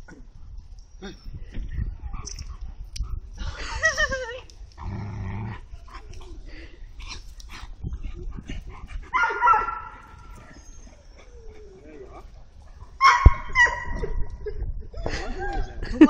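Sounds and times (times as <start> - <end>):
dog low growl: 4.8 - 6.6, 10.0 - 13.0
dogs high wavering cries: 8.9 - 15.4.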